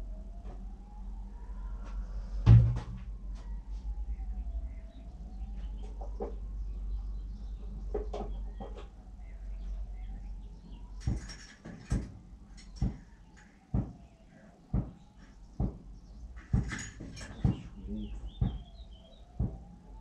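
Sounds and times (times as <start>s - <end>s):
low rumble: 0.0s - 5.7s
sharp knocks: 2.5s - 3.1s, 13.7s - 14.0s, 14.7s - 15.0s, 15.6s - 15.8s, 16.4s - 18.8s, 19.4s - 19.7s.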